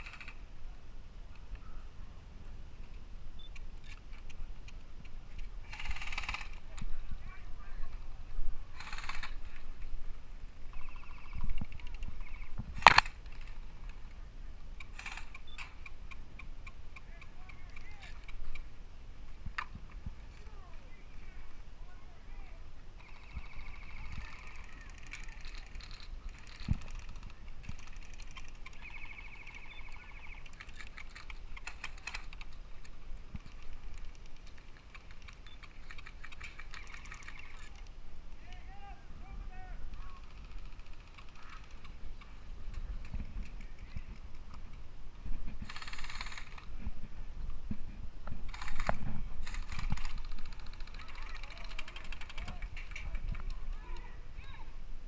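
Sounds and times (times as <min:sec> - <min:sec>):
airsoft guns firing rapid bursts: 0:05.6 - 0:06.7, 0:08.8 - 0:09.5, 0:23.0 - 0:32.3, 0:34.9 - 0:37.8, 0:39.9 - 0:42.0, 0:45.6 - 0:46.6, 0:48.5 - 0:53.0
airsoft guns firing: 0:05.7 - 0:06.7, 0:12.8 - 0:13.2.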